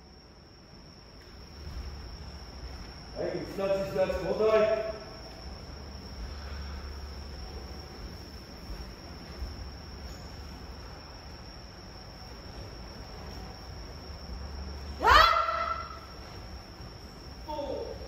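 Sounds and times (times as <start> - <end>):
crickets trilling: 0.0 - 18.0.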